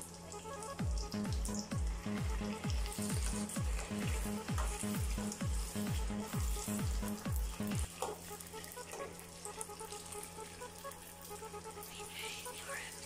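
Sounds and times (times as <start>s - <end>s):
background music with thumping beat: 0.0s - 11.9s
food sizzling in hot oil: 0.0s - 13.0s.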